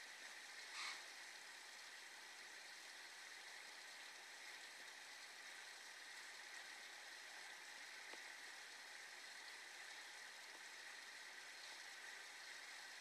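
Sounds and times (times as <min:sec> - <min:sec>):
faint tick: 0:08.0 - 0:08.3.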